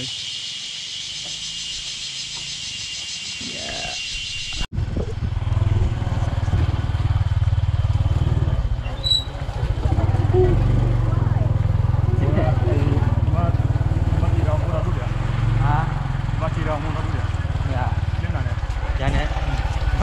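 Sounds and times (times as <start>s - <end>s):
small motorcycle engine running: 4.8s - 20.0s.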